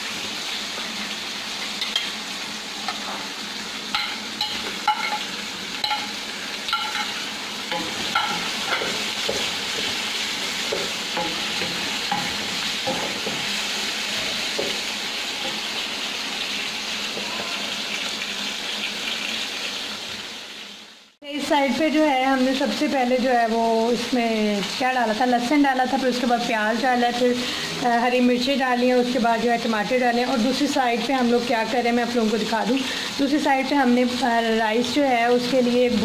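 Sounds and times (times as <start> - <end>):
vegetables sizzling in a pan: 0.0 - 36.0
wooden spatula knocking on pan: 7.7 - 10.0.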